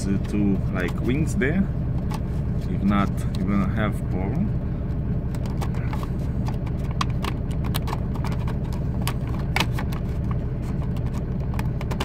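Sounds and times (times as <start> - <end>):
truck engine idling: 0.0 - 12.0
paper disc clicks and taps: 5.3 - 12.0.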